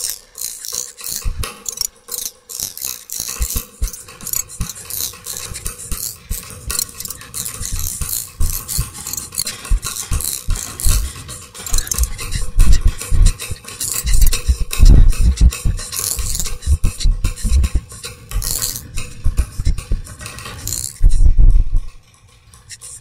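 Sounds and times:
experimental clattering and scraping: 0:00.0 - 0:23.0
low thuds: 0:11.7 - 0:17.8, 0:18.4 - 0:20.1, 0:21.0 - 0:22.0.

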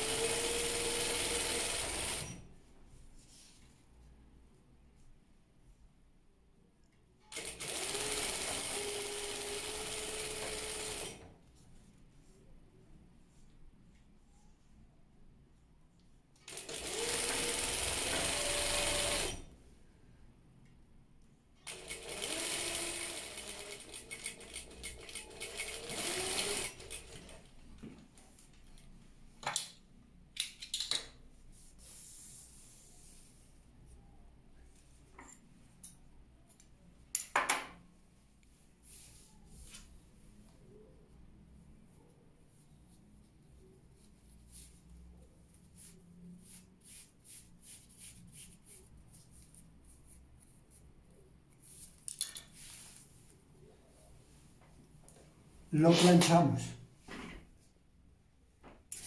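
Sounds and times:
sewing machine running: 0:00.0 - 0:02.4, 0:07.3 - 0:11.2, 0:16.5 - 0:19.5, 0:21.7 - 0:27.3.

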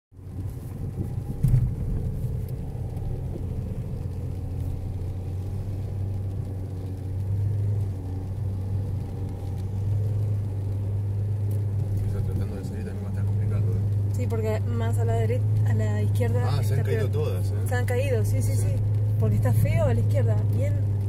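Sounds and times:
engine and tyres rumbling on sand: 0:00.1 - 0:21.0
car thump: 0:00.8 - 0:03.5.

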